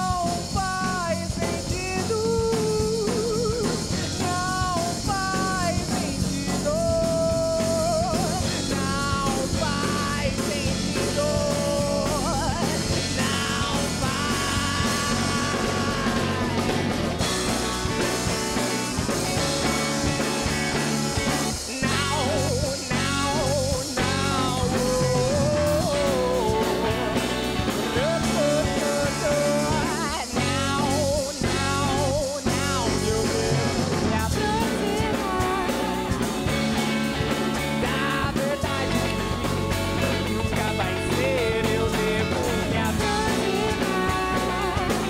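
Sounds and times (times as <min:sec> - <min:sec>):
live rock band with electric guitar: 0:00.0 - 0:45.0.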